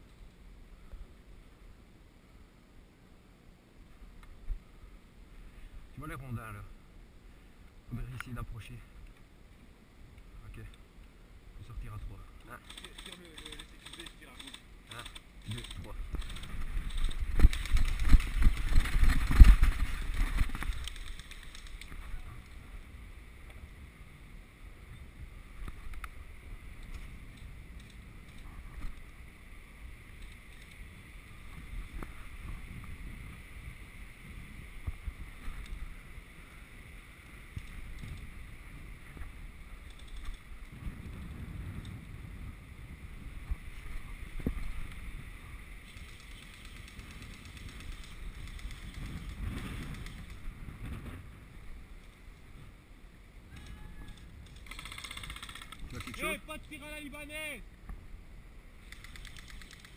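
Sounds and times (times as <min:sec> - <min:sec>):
wind buffeting microphone: 0:15.4 - 0:23.2, 0:37.4 - 0:51.9
small clicks and knocks: 0:58.8 - 0:59.9.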